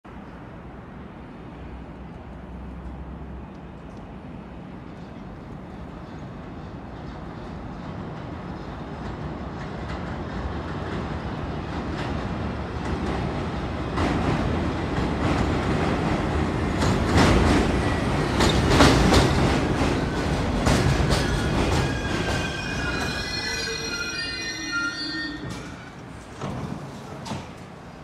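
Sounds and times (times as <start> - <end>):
subway train rumble: 0.1 - 28.0
wheels clacking over rail joints: 13.9 - 23.4.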